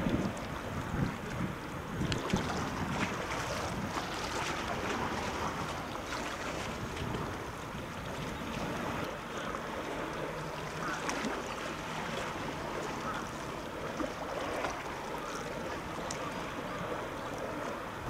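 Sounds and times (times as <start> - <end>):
wind on microphone: 0.0 - 13.2
sea water washing: 0.0 - 18.0.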